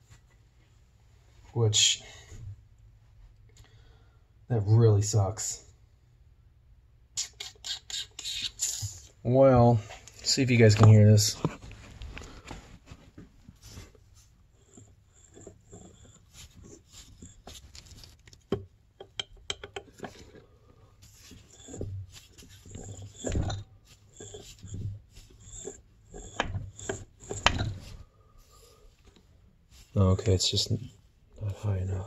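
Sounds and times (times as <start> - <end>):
crankshaft turning gritty rasping: 13.8 - 29.2.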